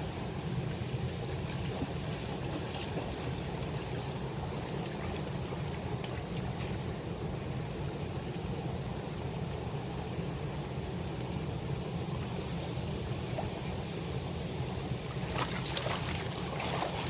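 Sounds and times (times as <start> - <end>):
river water rushing: 0.0 - 17.0
water splashing close: 15.1 - 17.0.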